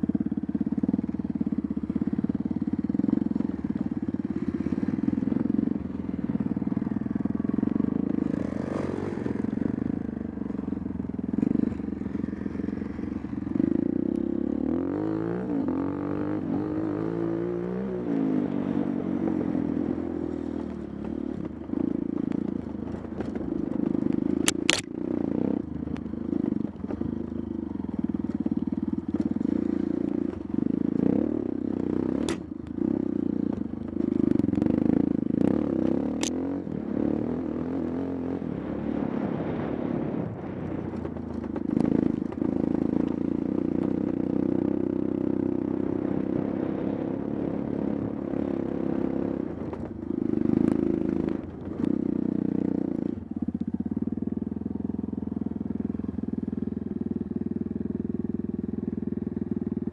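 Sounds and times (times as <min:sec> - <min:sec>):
dirt bike engine: 0:00.0 - 0:59.9
clatter: 0:22.3 - 0:25.0
sharp clicks: 0:24.4 - 0:24.9.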